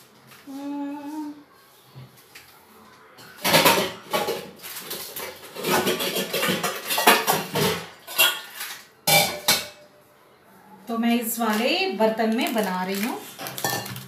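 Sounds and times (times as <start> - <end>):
steel kitchen vessels clattering: 3.3 - 9.9, 12.4 - 14.0.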